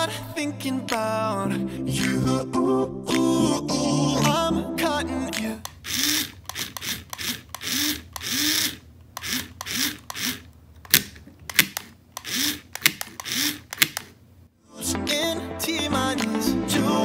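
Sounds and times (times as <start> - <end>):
sharp clicks: 5.3 - 14.2
toy motors whirring: 5.6 - 14.1.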